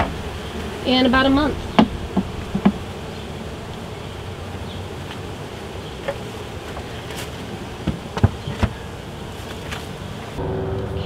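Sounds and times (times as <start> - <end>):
metal hive cover knocks: 0.0 - 0.8, 1.7 - 3.0, 6.0 - 9.9
honeybees buzzing: 0.0 - 11.0.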